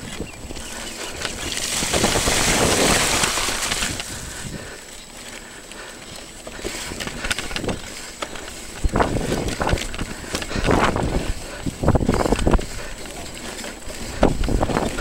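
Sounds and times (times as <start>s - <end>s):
tyres crunching on stones: 0.0s - 4.6s
bike rattling over bumps: 0.0s - 15.0s.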